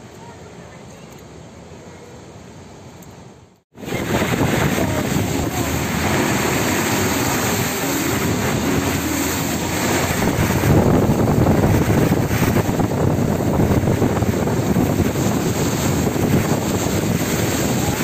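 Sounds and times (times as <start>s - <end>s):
wind rushing over microphone: 3.8s - 18.0s
water hiss from wet road: 11.9s - 18.0s.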